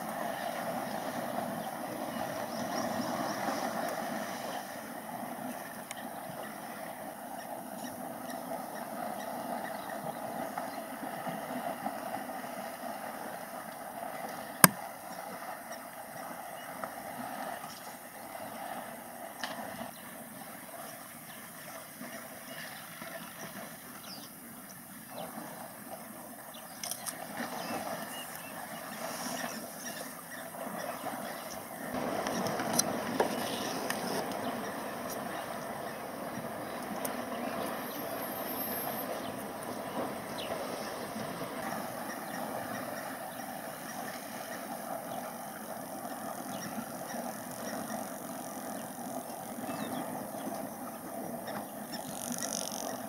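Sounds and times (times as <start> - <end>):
elephants splashing in water: 0.0 - 7.2, 25.1 - 53.0.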